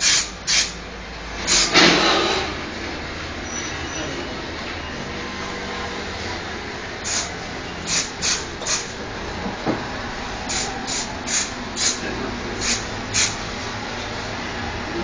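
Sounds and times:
trigger sprayer hissing bursts: 0.0s - 0.8s, 1.4s - 1.9s, 7.0s - 8.9s, 10.4s - 13.6s
steady machine drone: 0.0s - 15.0s.

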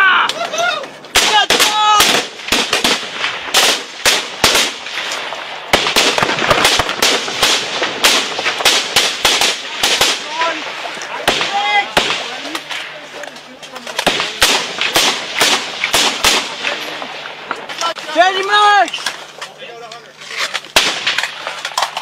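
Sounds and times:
rifle gunshots: 1.1s - 13.0s, 14.0s - 17.7s, 20.7s - 21.8s.

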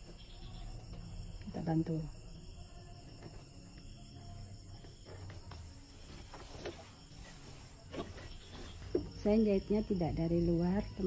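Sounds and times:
cloth rustling: 5.7s - 9.2s.

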